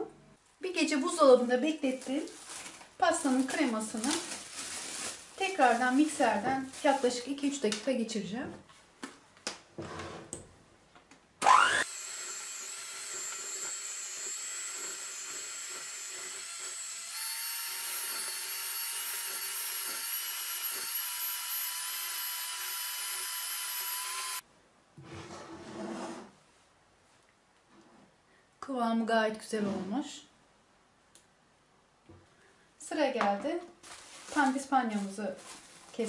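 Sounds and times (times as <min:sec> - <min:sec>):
electric hand mixer whining: 0:11.4 - 0:24.4.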